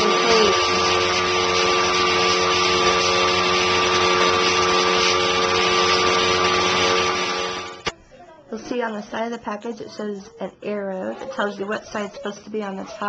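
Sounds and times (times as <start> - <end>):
vacuum cleaner running: 0.0 - 7.9.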